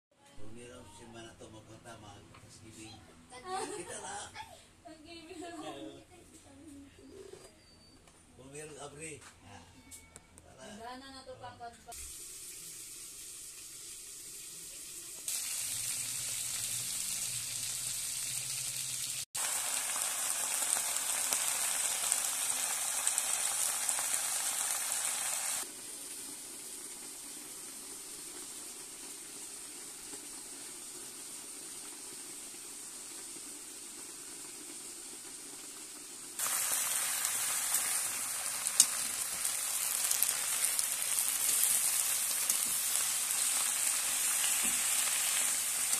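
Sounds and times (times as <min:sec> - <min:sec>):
food sizzling in hot oil: 0:11.9 - 0:45.9.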